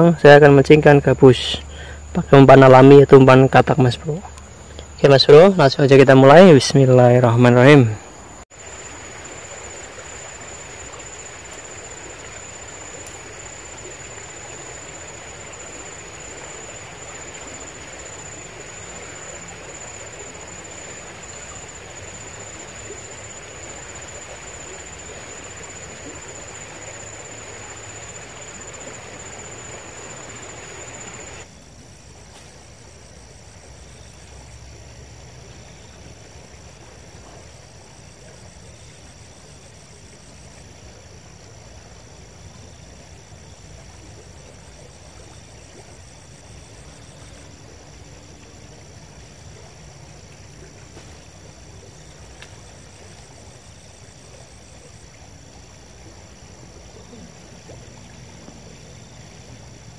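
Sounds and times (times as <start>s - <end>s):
high-pitched insect call: 0.0s - 59.9s
river water flowing over stones: 2.6s - 31.5s.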